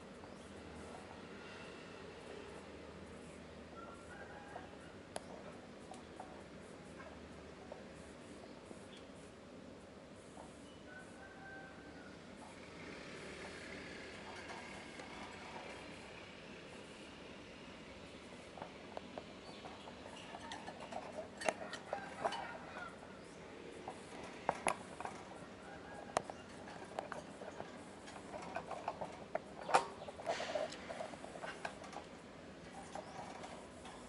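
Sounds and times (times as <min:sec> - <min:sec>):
claws scraping metal cage bars: 0:18.3 - 0:34.0.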